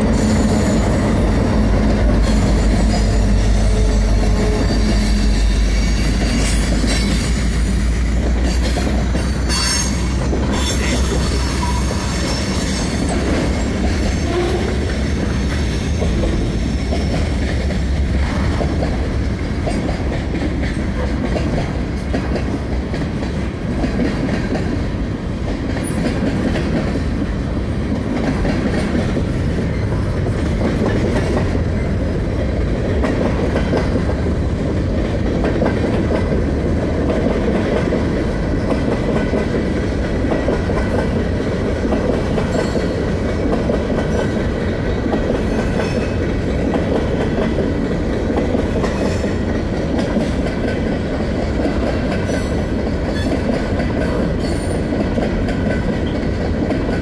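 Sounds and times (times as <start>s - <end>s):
diesel locomotive drone: 0.0s - 57.0s
train wheels rumbling on rail: 0.0s - 57.0s.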